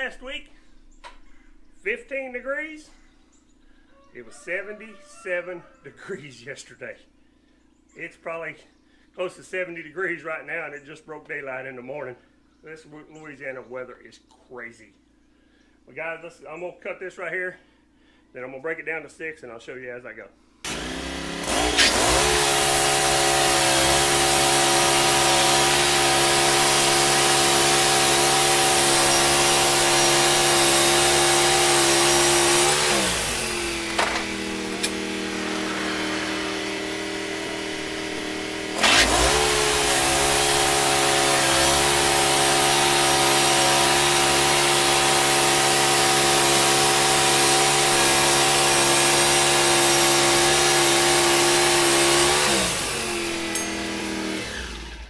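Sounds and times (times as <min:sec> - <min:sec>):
sawmill gas engine running: 0:20.6 - 0:55.0
band blade cutting a log: 0:20.7 - 0:55.0.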